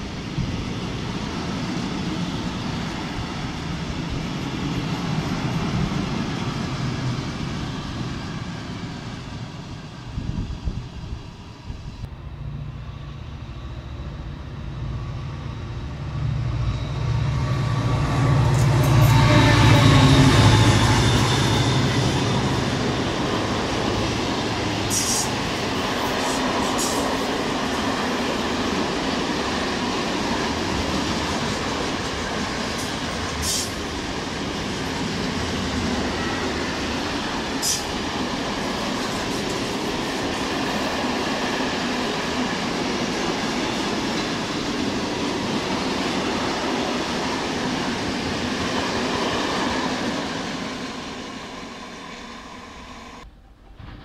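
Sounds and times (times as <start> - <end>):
diesel locomotive engine drone: 0.0 - 54.0
freight train rolling past: 0.0 - 54.0.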